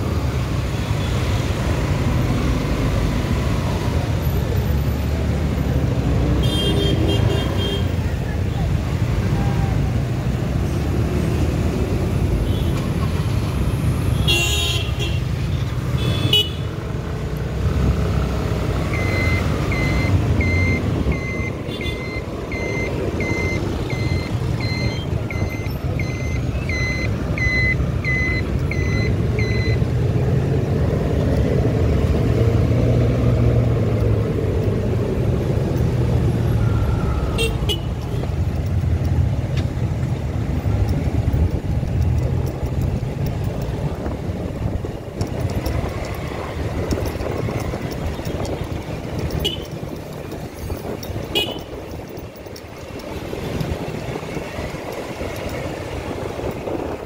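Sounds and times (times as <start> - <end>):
motorcycle engine and road rumble: 0.0 - 57.0
car horns honking: 6.4 - 8.0, 14.1 - 15.4, 16.0 - 16.7, 36.9 - 38.3, 49.4 - 49.8, 51.2 - 52.0
high beeps: 18.9 - 29.8.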